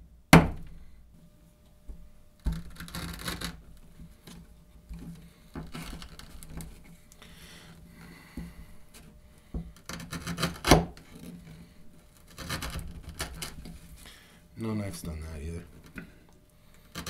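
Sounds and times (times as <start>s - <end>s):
blade scraping rope and board: 2.5s - 3.6s, 9.8s - 14.0s
knife rasping through rope: 12.2s - 13.8s.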